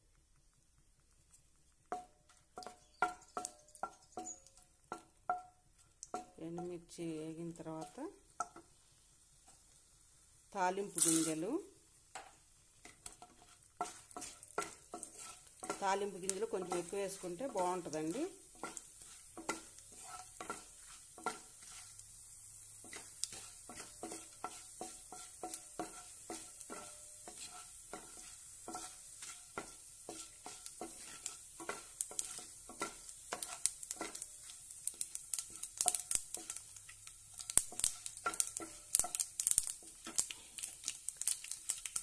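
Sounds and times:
oil sizzling with frying spices: 0.0 - 42.0
wooden spatula knocking pan: 1.8 - 6.8, 12.1 - 22.0, 22.8 - 36.6, 37.4 - 40.3.

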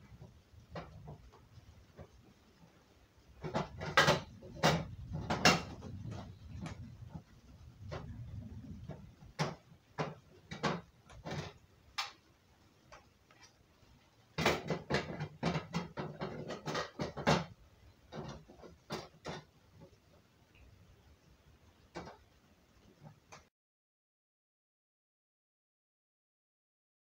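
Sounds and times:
plastic parts knocking and clicking: 0.1 - 2.3, 3.3 - 12.2, 14.4 - 20.0, 21.9 - 22.3.

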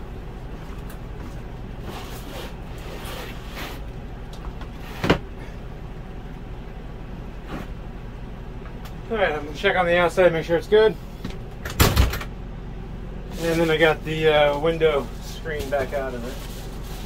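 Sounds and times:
steady low hum: 0.0 - 17.0
refrigerator scraping in cabinet: 1.2 - 3.9, 4.7 - 5.2, 13.3 - 17.0.

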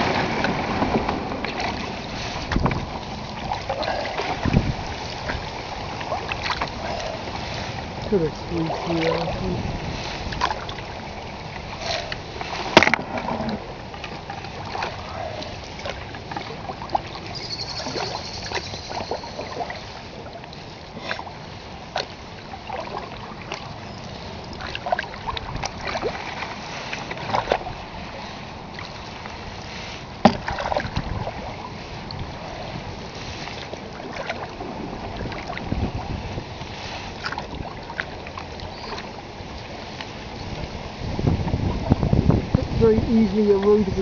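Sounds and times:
paddle strokes splashing: 0.0 - 44.0
water lapping along hull: 0.0 - 44.0
light knocks on canoe: 30.2 - 31.1.

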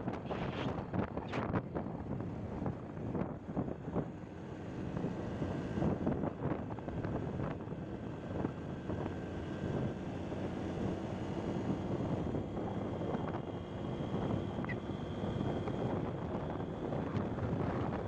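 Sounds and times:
road and engine noise: 0.0 - 18.0
wind buffeting microphone: 11.9 - 18.0.

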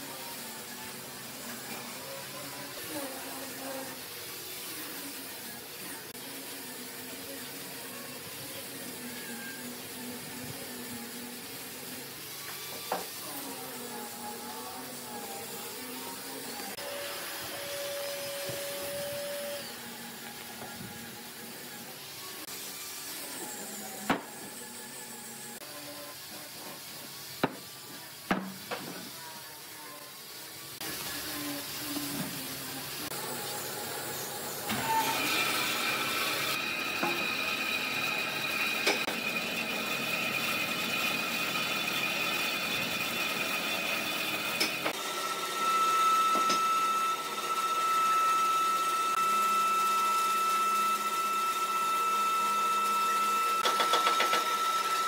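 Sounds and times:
band saw whining: 12.9 - 26.2, 33.0 - 55.0
wooden slabs knocking on workbench: 27.4 - 27.6.

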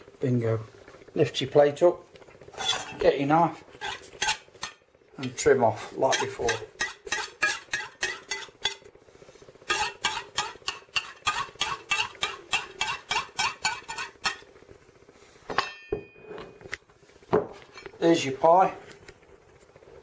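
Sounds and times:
knife scraping pastry: 2.5 - 3.0, 3.8 - 4.8, 9.7 - 14.4.

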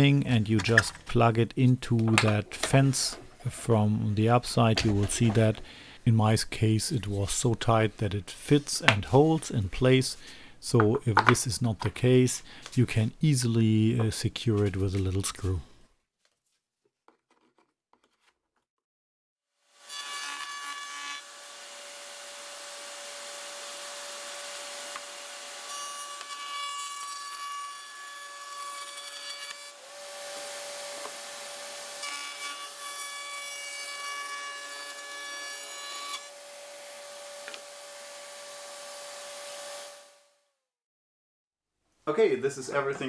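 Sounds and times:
router cutting wood: 19.8 - 40.2
table router whining: 21.2 - 26.5, 29.7 - 33.0, 36.1 - 40.2.

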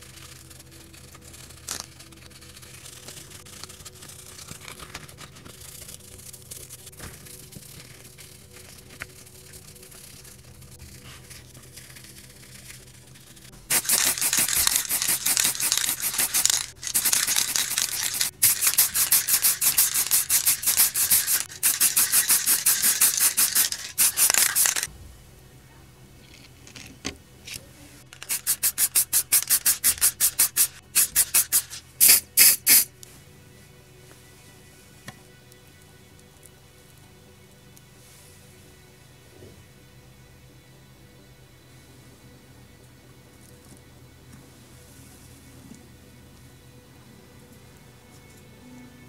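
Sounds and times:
scrubbing strokes: 6.9 - 24.9.

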